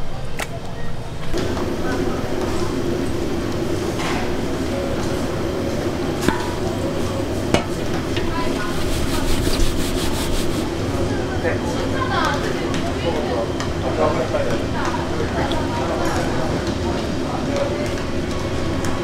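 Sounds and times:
faint voices: 0.0s - 19.0s
low hum: 1.2s - 11.0s
flour scraping metal bowl: 7.6s - 10.7s.

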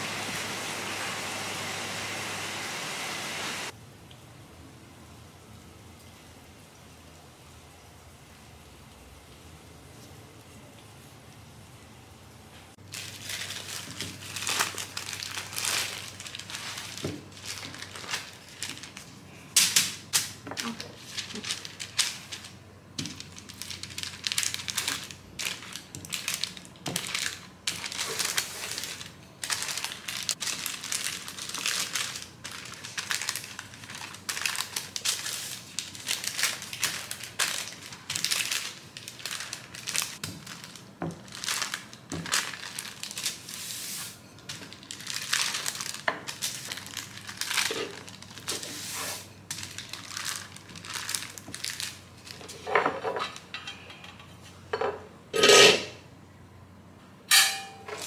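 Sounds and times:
baking paper crinkling: 12.8s - 53.5s.

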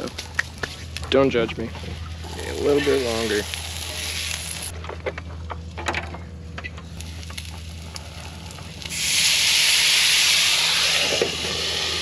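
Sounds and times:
low steady hum: 0.0s - 12.0s
loud steam hiss: 8.9s - 12.0s.

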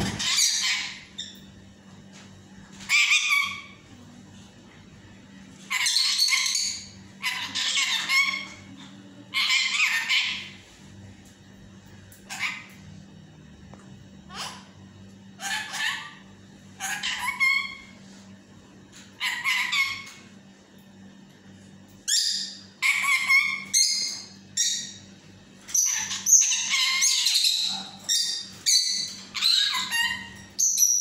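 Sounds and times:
parakeet chattering and calling: 0.0s - 1.5s, 2.8s - 3.8s, 5.7s - 10.6s, 12.2s - 12.8s, 15.4s - 18.0s, 19.2s - 20.2s, 22.1s - 25.1s, 25.7s - 31.0s.

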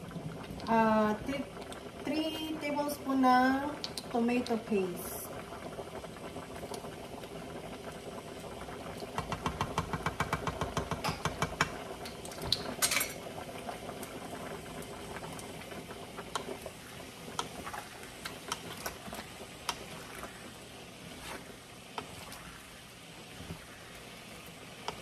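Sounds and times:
stew bubbling in a pan: 0.0s - 25.0s
spoon tapping against a pan: 9.2s - 11.8s
wooden spatula scraping a pan: 19.9s - 22.5s.

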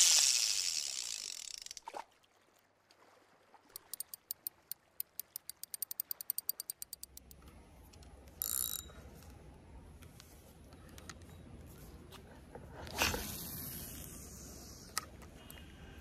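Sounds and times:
rapid ratchet-like clicks: 0.0s - 1.8s, 3.8s - 7.4s.

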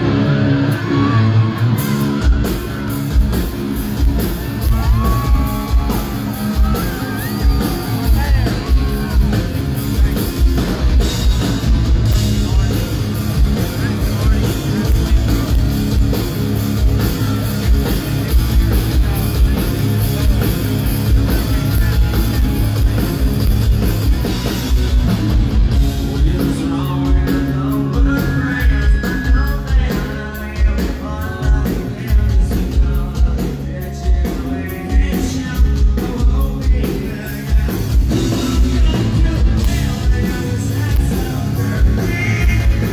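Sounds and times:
drum kit: 0.0s - 42.9s
electric guitar: 0.0s - 42.9s
live rock band playing: 0.0s - 42.9s
lead singer's voice: 26.0s - 42.9s.

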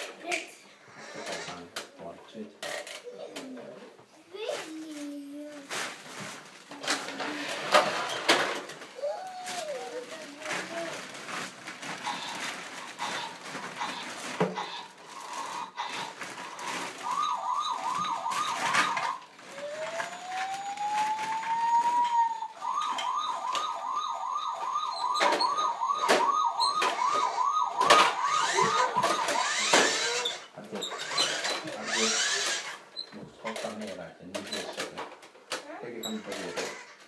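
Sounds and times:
plastic toys clattering: 4.4s - 37.0s
toy siren yelping and wailing: 13.0s - 32.8s.

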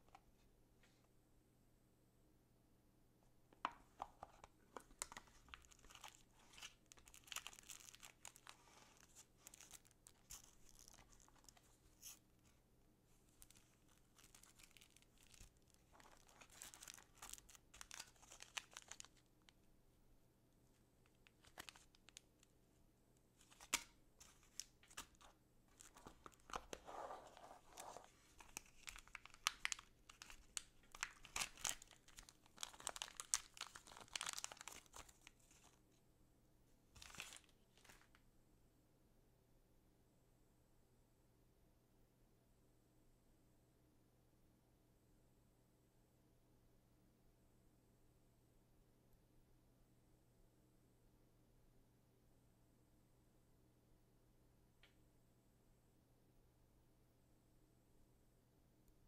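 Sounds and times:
packaging rustling and tearing: 4.0s - 12.2s, 13.4s - 19.2s, 21.2s - 22.2s, 23.4s - 35.8s, 37.0s - 38.2s.

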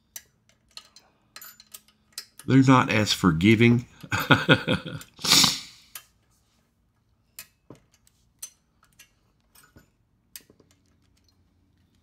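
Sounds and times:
short breathy hiss: 5.2s - 5.9s.

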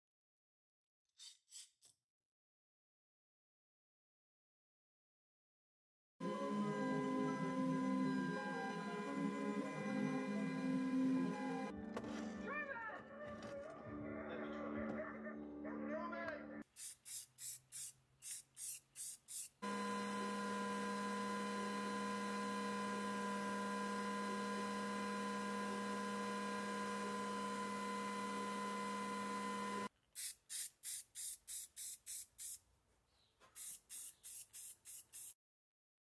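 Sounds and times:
laser cutter humming: 6.2s - 11.7s, 19.6s - 29.9s
aerosol spray can spurts: 16.6s - 19.6s, 30.2s - 32.6s, 33.5s - 35.4s.

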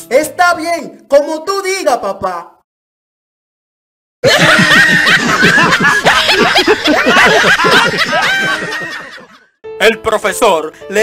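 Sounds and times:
canned laughter: 4.2s - 9.5s.

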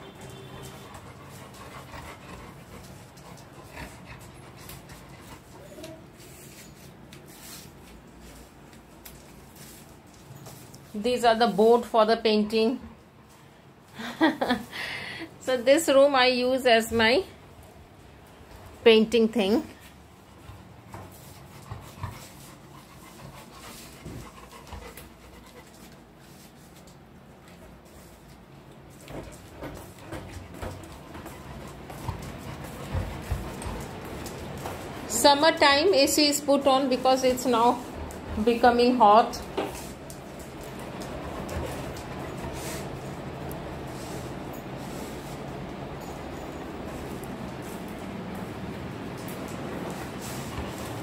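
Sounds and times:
dog panting: 0.0s - 6.3s, 19.4s - 26.8s, 28.8s - 48.7s, 49.3s - 51.0s.

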